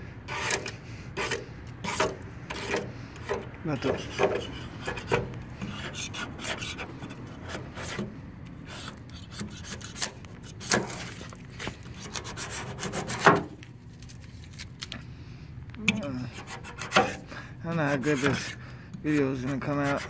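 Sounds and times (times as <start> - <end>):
razor blade scraping paint: 0.3 - 13.5, 15.9 - 20.0.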